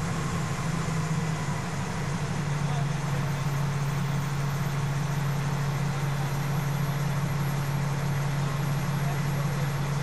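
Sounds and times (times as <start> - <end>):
diesel engine droning: 0.0 - 10.0.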